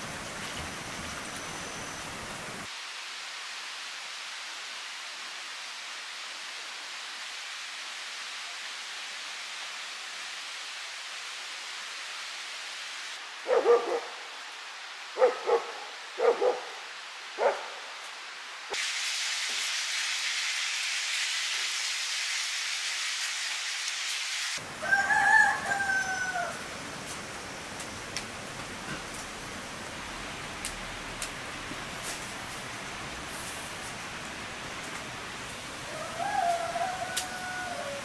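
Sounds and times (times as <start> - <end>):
steady hiss: 0.0 - 38.0
dog barking: 13.4 - 14.2, 15.2 - 16.8, 17.4 - 17.8.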